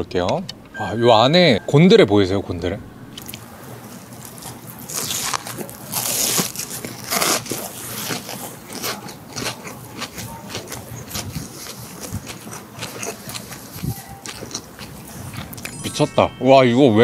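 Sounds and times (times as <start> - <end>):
crunchy chewing: 3.2 - 15.6.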